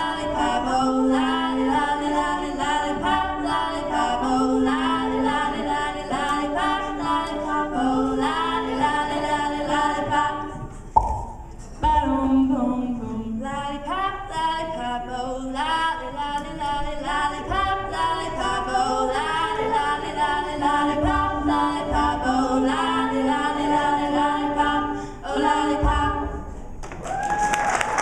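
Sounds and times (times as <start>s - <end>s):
women singing a cappella: 0.0s - 11.0s, 11.7s - 26.8s
audience applause: 26.8s - 28.0s.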